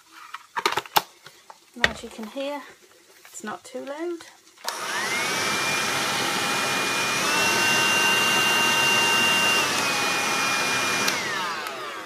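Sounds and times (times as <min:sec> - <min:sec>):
handheld vacuum cleaner whine: 0:04.7 - 0:12.0.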